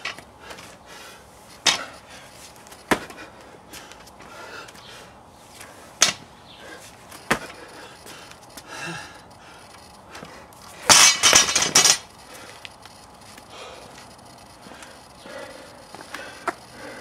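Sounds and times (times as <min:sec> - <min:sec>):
barbell clanking on rubber mats: 0:01.6 - 0:01.9, 0:10.9 - 0:12.0.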